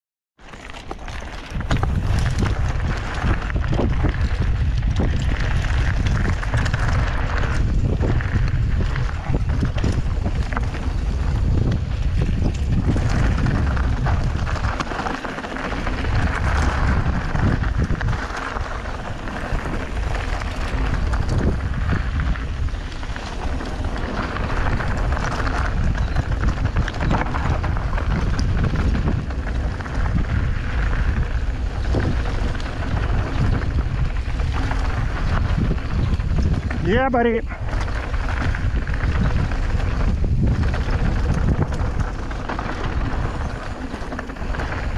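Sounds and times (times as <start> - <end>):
bike clicks and rattles: 0.4 - 44.9
tyres rolling over gravel: 0.4 - 44.9
wind buffeting microphone: 1.4 - 44.9.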